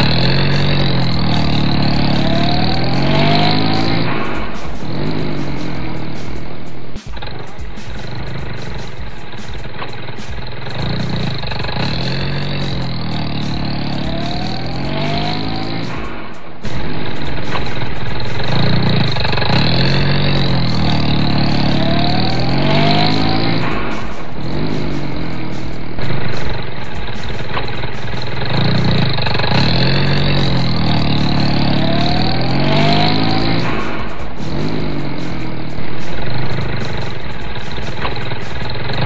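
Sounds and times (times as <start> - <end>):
engine revving: 0.0 - 39.0.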